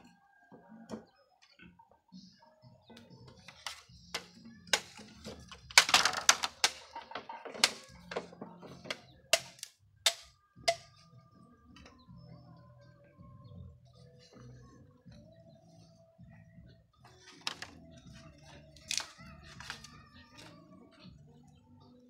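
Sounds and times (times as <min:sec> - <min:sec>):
bamboo poles knocking: 0:03.3 - 0:11.0, 0:17.2 - 0:20.6.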